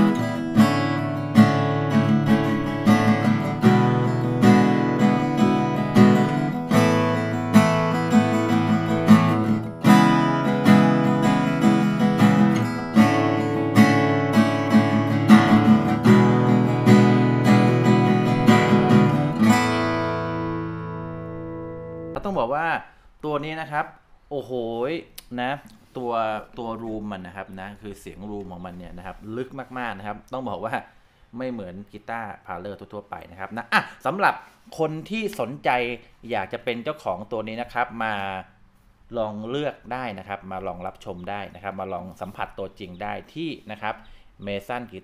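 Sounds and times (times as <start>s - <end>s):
acoustic guitar strumming: 0.0s - 22.2s.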